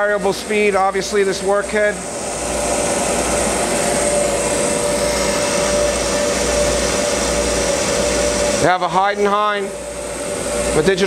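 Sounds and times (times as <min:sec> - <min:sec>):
grinder machine whirring: 0:00.0 - 0:11.0.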